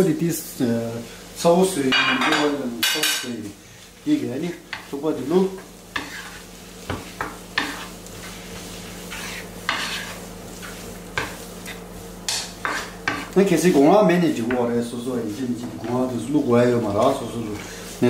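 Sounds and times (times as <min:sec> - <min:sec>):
wooden spatula scraping a pan: 0:03.4 - 0:14.6
pasta swishing in a pan: 0:03.4 - 0:18.0.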